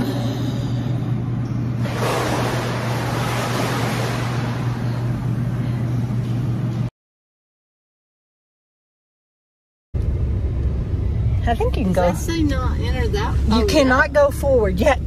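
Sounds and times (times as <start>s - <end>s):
steady low hum: 0.0s - 6.9s, 10.0s - 15.0s
water splashing in a pool: 1.8s - 5.4s.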